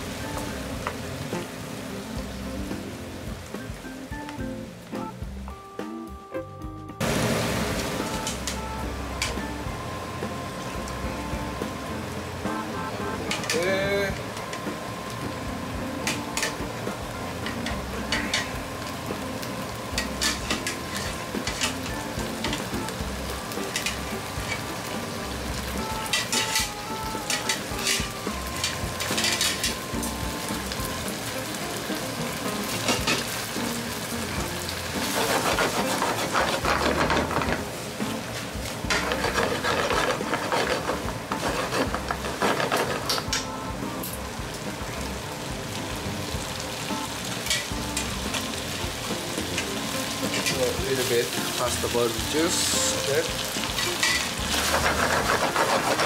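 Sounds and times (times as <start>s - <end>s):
sauce sizzling in a frying pan: 0.0s - 5.5s, 7.0s - 56.0s
utensil scraping and clattering on pan: 13.3s - 13.6s, 17.4s - 18.6s, 19.9s - 22.9s, 23.6s - 25.1s, 26.1s - 29.8s, 32.7s - 33.3s, 35.0s - 43.5s, 49.3s - 51.3s, 52.6s - 56.0s.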